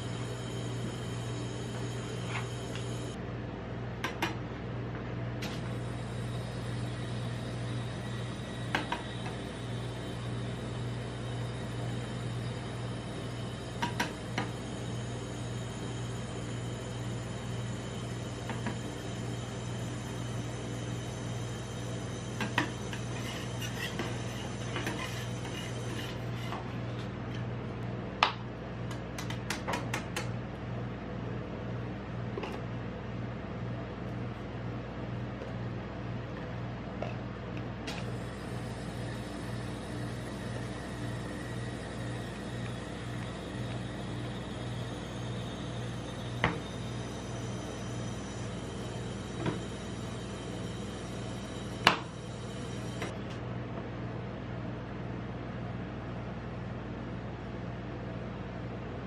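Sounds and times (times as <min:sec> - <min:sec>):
steady low hum: 0:00.0 - 0:59.0
metal spatula scraping cold plate: 0:22.5 - 0:26.7.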